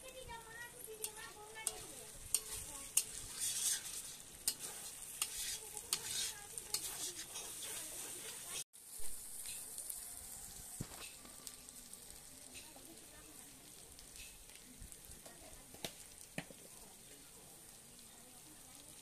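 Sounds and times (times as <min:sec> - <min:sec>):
paste sizzling in oil: 0:00.0 - 0:19.0.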